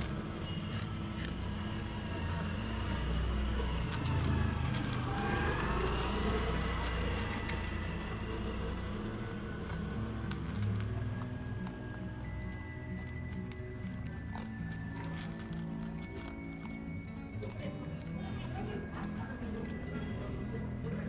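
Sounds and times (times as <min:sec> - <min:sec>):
dog crunching dry kibble: 0:00.0 - 0:21.0
vehicle engine rumble passing: 0:00.0 - 0:21.0.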